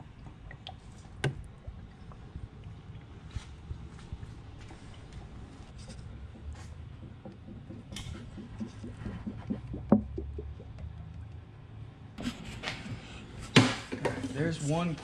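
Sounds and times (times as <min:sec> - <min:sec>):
air bubbling in bottle: 0:00.0 - 0:11.1
oil glugging from plastic bottle: 0:00.0 - 0:11.2.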